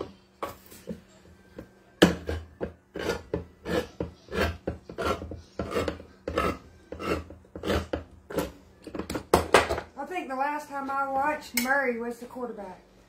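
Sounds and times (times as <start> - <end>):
can opener grinding: 2.1 - 9.2.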